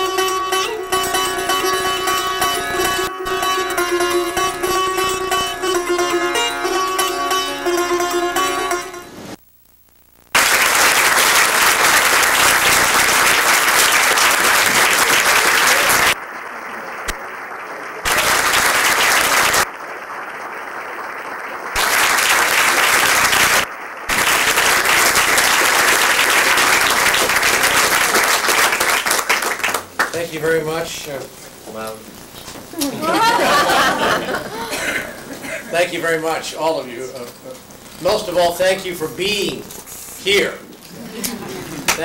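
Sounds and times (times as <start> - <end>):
music: 0.0 - 9.3
people applauding: 10.3 - 30.9, 32.7 - 36.1, 40.8 - 42.0.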